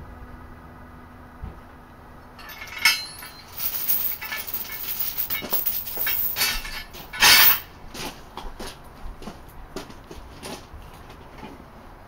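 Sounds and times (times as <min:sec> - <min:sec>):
sharp metal clank: 0:02.4 - 0:07.7
steel chain rattling and jangling: 0:02.4 - 0:07.7.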